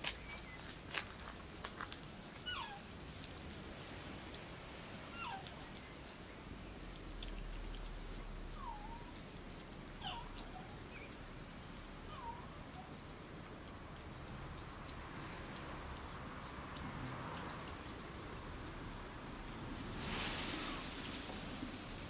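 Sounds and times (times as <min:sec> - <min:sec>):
puppies whimpering: 0:02.4 - 0:02.8, 0:05.1 - 0:05.7, 0:08.6 - 0:11.1, 0:12.1 - 0:13.0.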